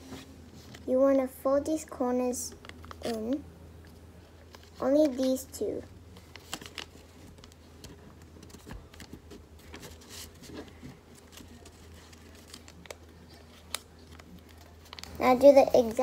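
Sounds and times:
paper rustling and creasing: 0:04.4 - 0:16.0.

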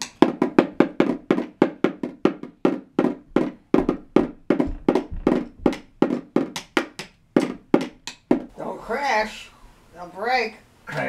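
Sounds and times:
toy drum beaten with drumsticks: 0:00.0 - 0:08.5.

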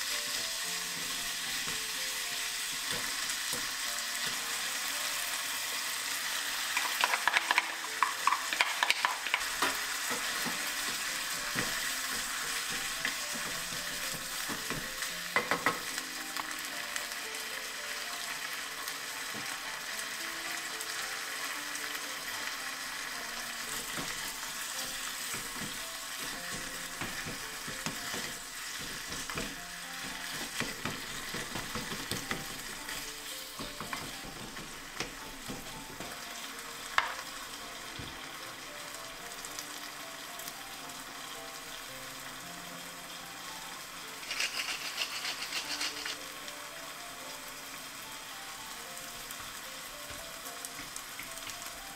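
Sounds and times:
food sizzling in a saucepan: 0:00.0 - 0:51.9
pepper mill grinding: 0:06.7 - 0:11.0, 0:44.2 - 0:46.2
wooden spatula scraping: 0:23.6 - 0:36.1, 0:44.2 - 0:46.2.

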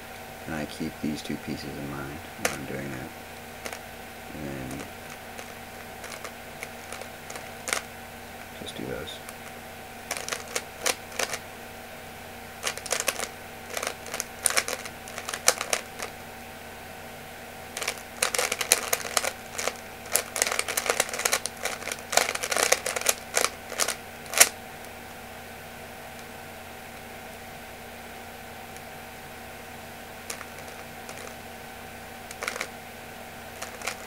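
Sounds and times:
puzzle cube clicking: 0:02.4 - 0:02.8, 0:04.4 - 0:07.9, 0:10.1 - 0:11.4, 0:12.6 - 0:16.1, 0:17.8 - 0:24.6, 0:30.2 - 0:31.4, 0:32.3 - 0:32.7, 0:33.6 - 0:34.0.

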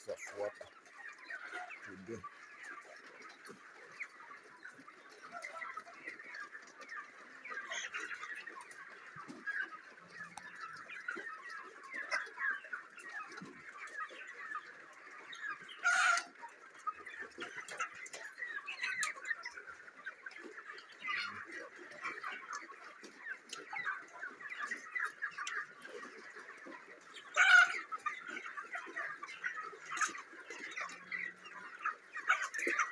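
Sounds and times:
chickens peeping and clucking: 0:00.0 - 0:32.9.

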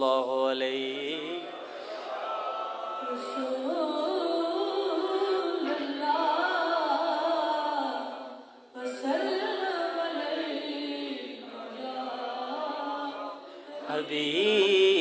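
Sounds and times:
loud voice close to microphone: 0:00.0 - 0:02.3, 0:03.0 - 0:15.0.

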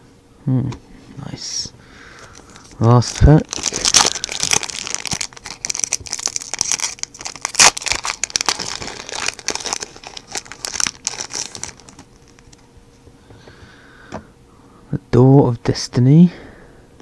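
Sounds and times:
plastic wrapper crinkling: 0:02.2 - 0:12.6.

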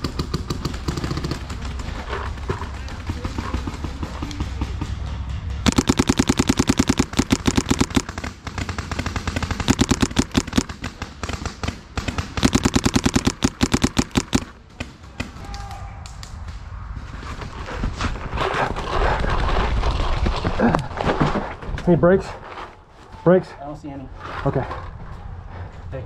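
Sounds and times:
paintball marker rapid shots: 0:05.6 - 0:14.9.

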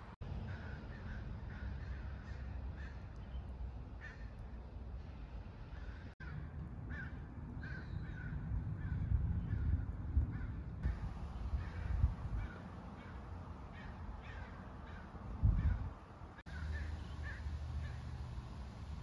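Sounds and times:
birds calling harshly: 0:00.4 - 0:18.3.

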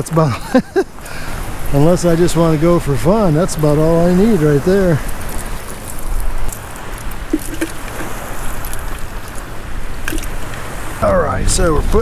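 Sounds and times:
light clicks and patters: 0:01.5 - 0:10.7
steady rushing with low rumble: 0:01.5 - 0:12.0
cast net rustling on shells: 0:04.1 - 0:10.8.

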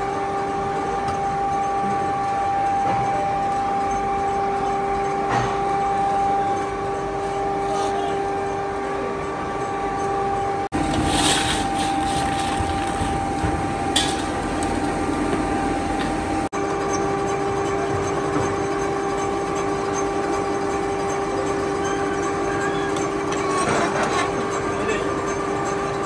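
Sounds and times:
workshop machinery humming: 0:00.0 - 0:26.0.

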